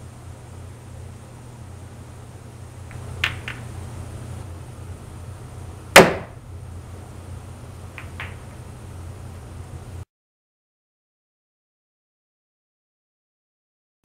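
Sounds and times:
steady low hum: 0.0 - 10.1
pool cue striking ball: 2.9 - 3.7, 6.0 - 6.4, 8.0 - 8.6
billiard balls clicking: 2.9 - 3.8, 7.9 - 8.6.

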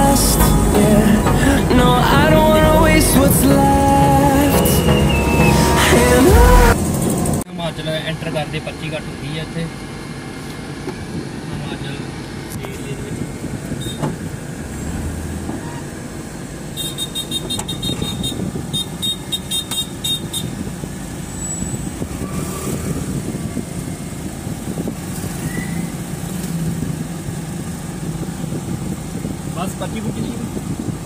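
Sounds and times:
car engine idling: 0.0 - 31.0
rapid high ticking beeps: 4.3 - 6.7.

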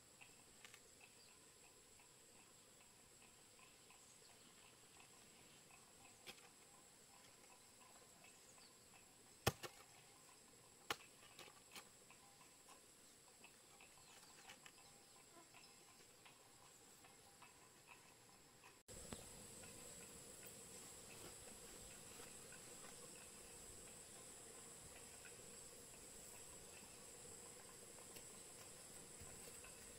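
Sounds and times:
hoe blade striking stony soil: 9.4 - 9.9.

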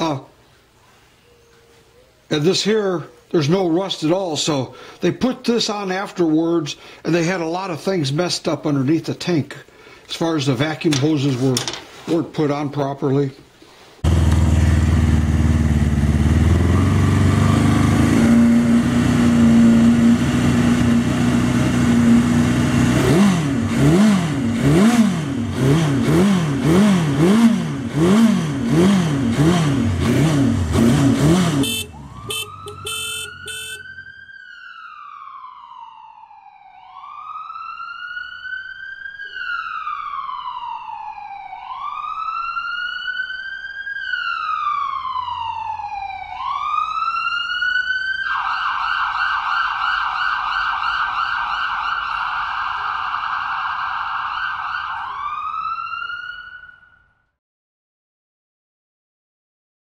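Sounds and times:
motorcycle engine revving: 14.0 - 33.9
wailing siren: 16.3 - 23.7, 31.6 - 57.2.

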